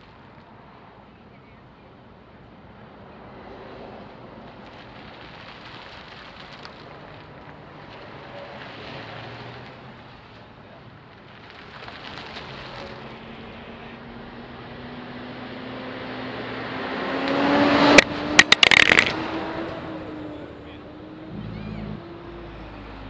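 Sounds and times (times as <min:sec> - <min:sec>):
car engine revving: 0:13.1 - 0:23.0.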